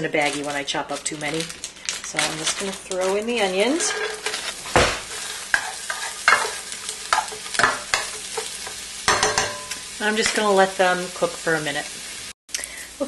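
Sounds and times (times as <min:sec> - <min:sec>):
onions sizzling in a frying pan: 0:00.0 - 0:13.0
spatula scraping and knocking a pan: 0:02.2 - 0:10.4.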